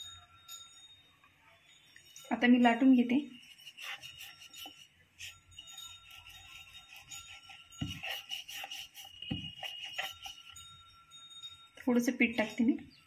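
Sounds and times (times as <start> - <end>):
light clinking and jingling: 0.0 - 3.4, 4.2 - 8.2, 10.1 - 13.0
rolling pin rolling dough: 2.3 - 10.8.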